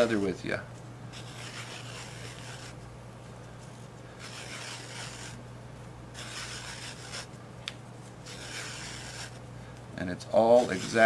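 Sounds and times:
steady low hum: 0.0s - 11.0s
leather rasping past knife: 4.2s - 5.4s, 6.2s - 7.3s, 8.3s - 9.4s.

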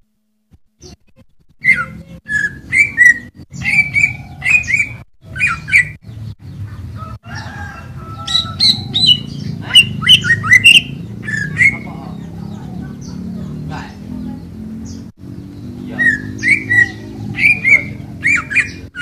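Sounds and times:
bird singing chirping whistles: 1.6s - 6.0s, 8.4s - 11.9s, 15.9s - 19.0s.

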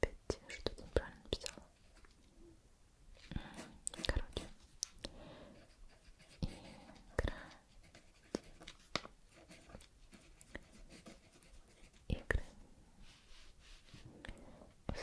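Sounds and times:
pen scratching on paper: 5.5s - 12.1s.

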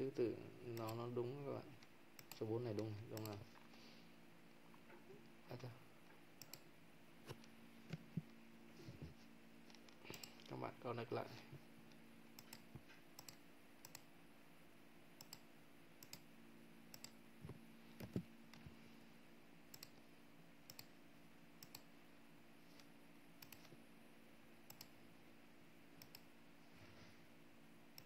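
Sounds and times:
faint steady hum: 0.0s - 28.0s
computer mouse clicking: 0.7s - 1.0s, 1.8s - 3.6s, 6.4s - 6.7s, 9.7s - 10.5s, 11.9s - 14.1s, 15.2s - 16.3s, 16.9s - 18.6s, 19.7s - 20.1s, 20.7s - 20.9s, 21.6s - 21.9s, 22.7s - 23.8s, 24.7s - 25.0s, 26.0s - 26.3s.

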